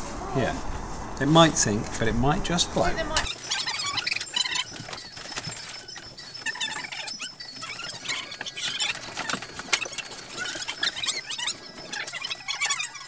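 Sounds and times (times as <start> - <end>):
cardboard scraping and creaking: 2.8 - 13.0.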